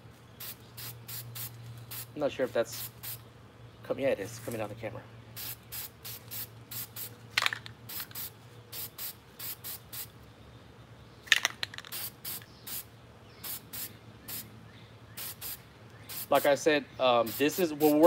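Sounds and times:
spray paint can hissing: 0.4 - 2.1, 2.7 - 3.2, 5.4 - 10.1, 11.8 - 14.5, 15.2 - 16.5, 17.3 - 18.0.

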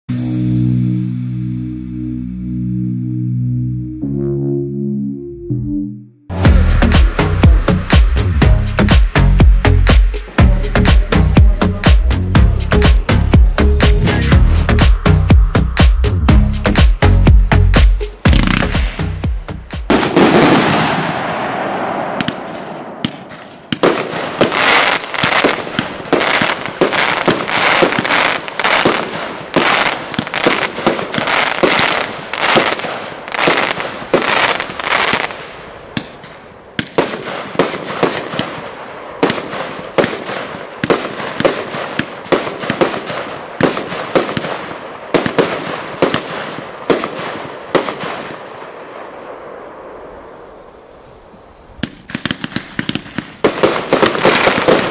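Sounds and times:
firework crackling: 6.3 - 16.0, 16.7 - 54.9
firework launch thumps and bangs: 19.8 - 31.9.

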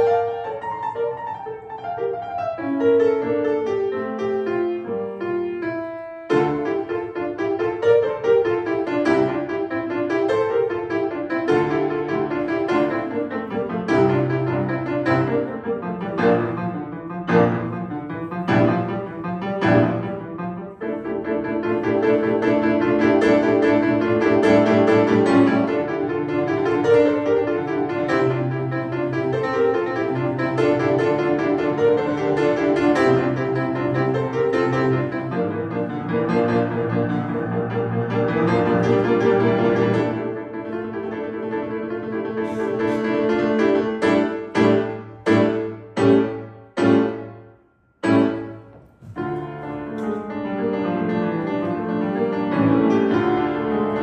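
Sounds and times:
grand piano playing: 0.0 - 54.0.

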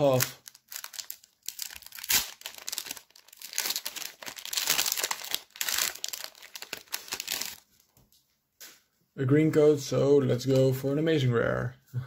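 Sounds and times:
foil wrapper crinkling: 0.0 - 7.8.

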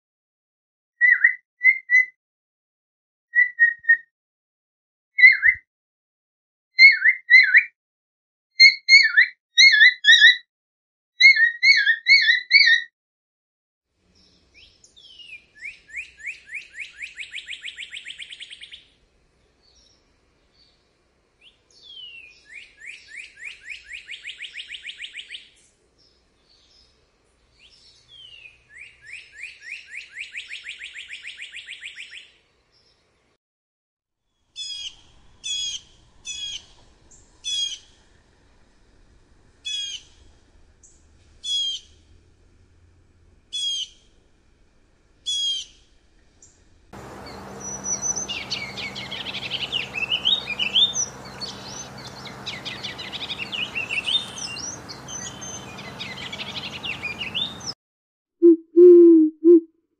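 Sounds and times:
blue jay calls: 14.6 - 18.9, 21.8 - 25.5, 34.6 - 36.8, 37.4 - 37.9, 39.6 - 40.2, 41.4 - 42.0, 43.5 - 44.0, 45.2 - 45.8, 47.0 - 57.7
many birds chirping: 21.4 - 33.1, 34.6 - 38.1, 47.0 - 57.8
cardinal singing a fast trill: 47.0 - 57.8.

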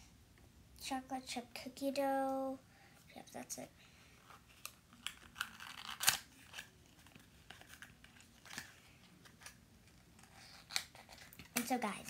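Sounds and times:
plastic packaging crinkling and tearing: 4.4 - 12.0.

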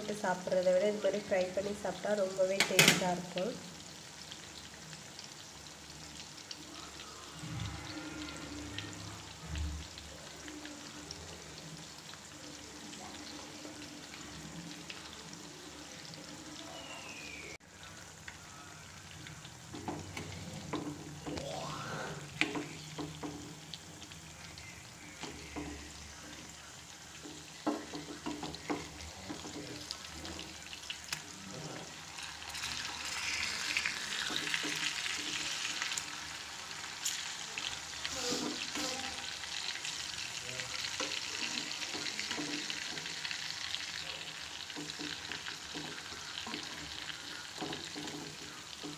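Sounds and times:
fish sizzling in oil: 0.0 - 48.9
spatula scraping a pan: 37.0 - 40.1, 44.6 - 48.9.

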